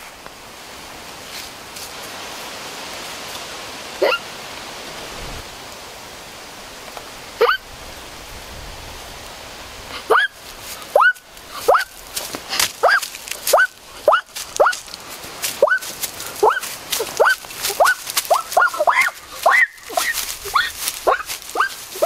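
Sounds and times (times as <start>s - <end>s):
steady hiss: 0.0s - 22.0s
short rising yelps: 4.0s - 4.2s, 10.1s - 10.3s, 11.0s - 11.9s, 17.2s - 21.8s.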